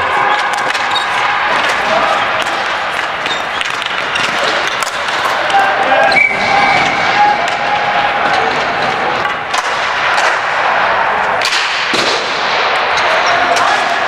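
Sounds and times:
sticks and ball hitting boards: 0.0s - 5.8s, 6.8s - 14.0s
noisy rink din: 0.0s - 14.0s.

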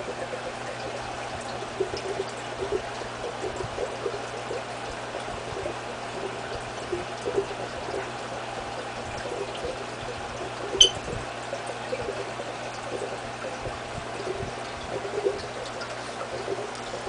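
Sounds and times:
aquarium water trickling: 0.0s - 17.0s
low steady hum: 0.0s - 17.0s.

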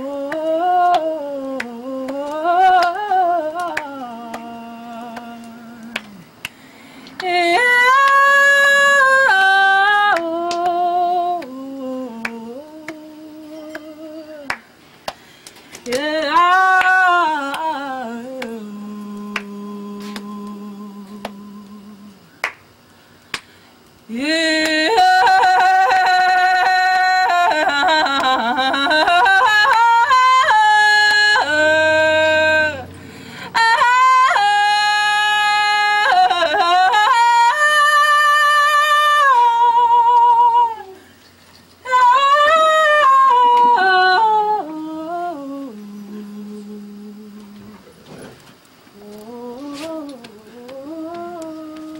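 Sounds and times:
woman singing unaccompanied: 0.0s - 6.5s, 7.1s - 14.7s, 15.8s - 22.5s, 24.1s - 41.1s, 41.8s - 48.0s, 48.9s - 51.9s
hand clapping on chest: 5.8s - 7.3s, 22.4s - 22.6s, 23.3s - 23.5s
faint clicks: 48.4s - 51.9s.

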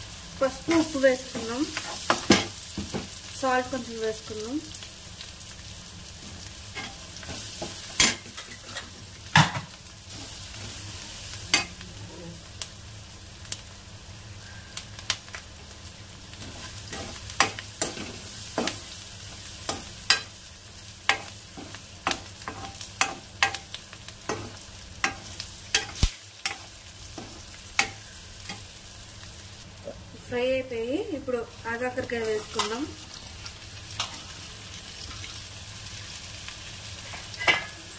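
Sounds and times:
food sizzling in hot oil: 0.0s - 37.9s
metal spoon scraping a pan: 16.4s - 18.9s, 21.1s - 28.6s.

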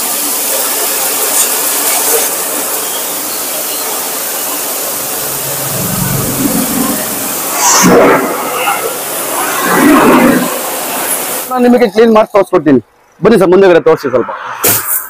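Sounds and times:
pressure washer water jet hissing: 0.0s - 11.8s
low hum: 4.7s - 10.6s.

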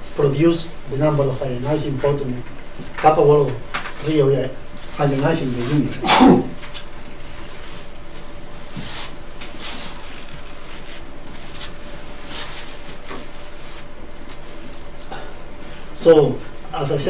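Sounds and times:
faint hum: 0.0s - 17.0s
man speaking: 0.2s - 6.6s, 16.0s - 17.0s.

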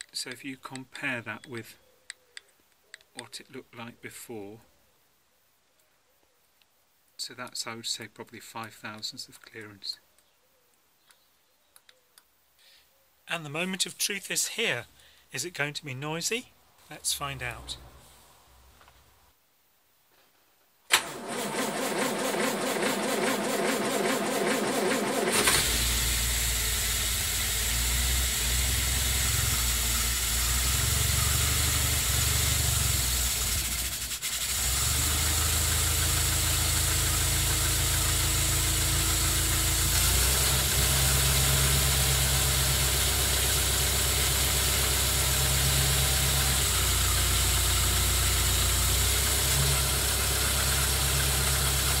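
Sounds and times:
car engine turning over and idling: 20.9s - 52.0s.

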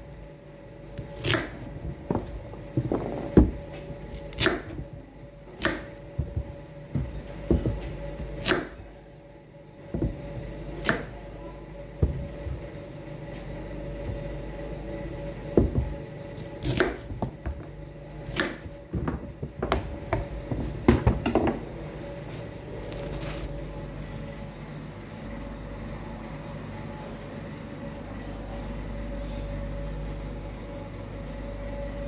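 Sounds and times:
faint hum: 0.0s - 32.0s
knife chopping on cutting board: 3.4s - 4.9s, 16.6s - 17.5s.

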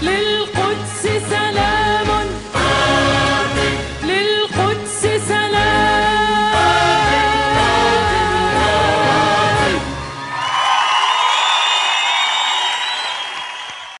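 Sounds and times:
orchestra with strong bass: 0.0s - 10.2s
choir singing held notes: 1.4s - 4.1s, 5.5s - 10.4s.

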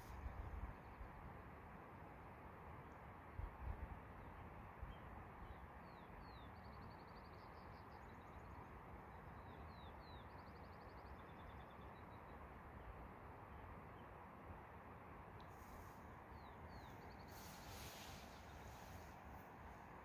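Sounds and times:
steady hiss: 0.0s - 0.2s, 15.4s - 20.0s
small songbird singing: 4.2s - 12.9s, 15.4s - 19.2s.

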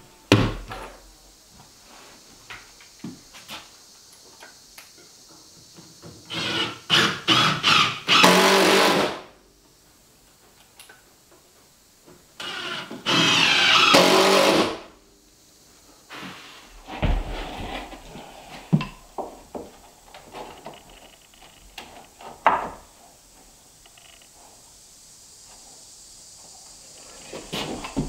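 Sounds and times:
knocks and handling of wood: 0.3s - 1.8s, 16.1s - 23.0s, 27.2s - 28.0s
cordless drill driving screws: 6.3s - 9.1s, 12.4s - 14.8s.

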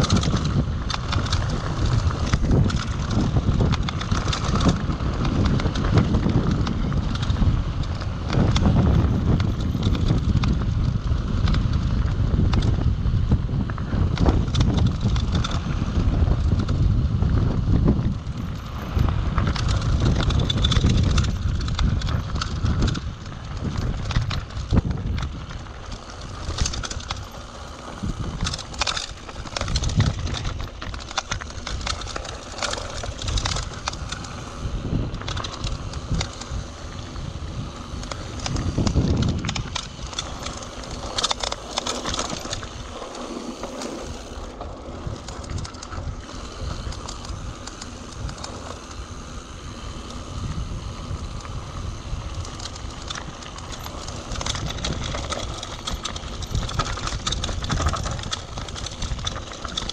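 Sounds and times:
bike rattling and knocking: 0.0s - 59.9s
wind rumbling on microphone: 0.0s - 59.9s
tyres crunching over loose stones: 18.8s - 49.0s, 51.4s - 59.9s.

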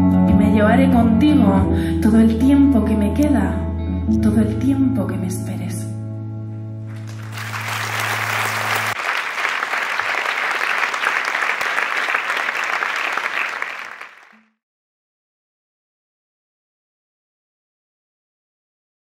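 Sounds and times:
audience applauding: 6.9s - 14.4s.

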